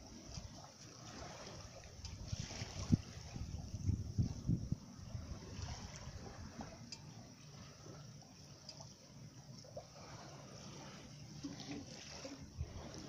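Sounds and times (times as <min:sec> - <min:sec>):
water lapping along hull: 0:00.0 - 0:13.0
drip-like ticks: 0:06.6 - 0:07.5, 0:08.5 - 0:09.0.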